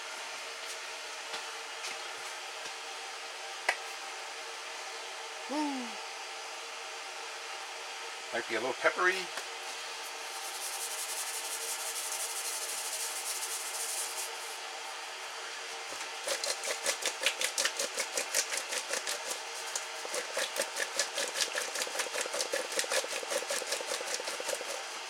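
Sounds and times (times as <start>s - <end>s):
pepper mill grinding: 15.9s - 24.9s.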